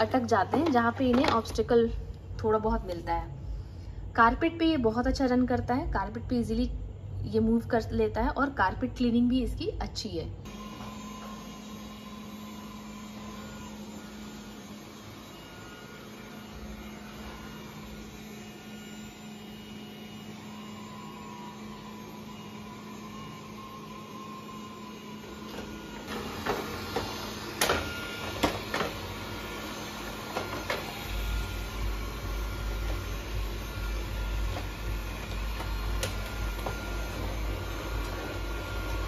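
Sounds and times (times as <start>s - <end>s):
robot vacuum humming: 10.4s - 39.0s.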